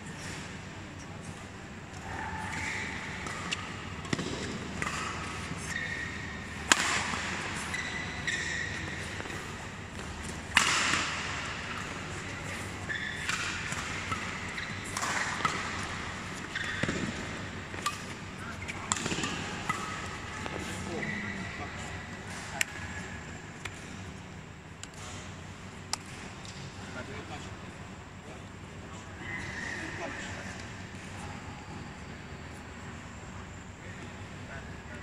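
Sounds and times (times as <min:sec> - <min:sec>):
rackets striking shuttlecock: 0:02.0 - 0:09.4, 0:10.0 - 0:12.2, 0:12.8 - 0:21.1
shoes squeaking on court: 0:02.5 - 0:06.4, 0:07.5 - 0:10.4, 0:11.8 - 0:18.9, 0:19.7 - 0:23.0.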